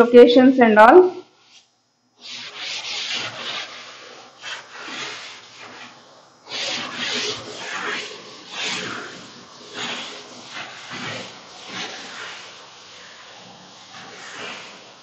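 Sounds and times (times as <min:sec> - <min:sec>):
duster rubbing on chalkboard: 0:01.4 - 0:15.0.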